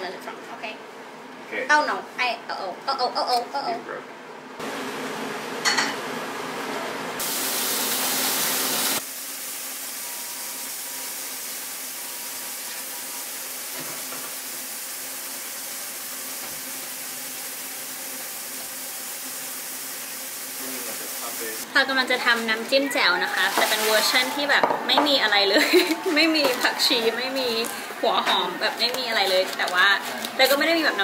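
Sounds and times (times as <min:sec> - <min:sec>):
steady hiss: 0:07.2 - 0:22.5.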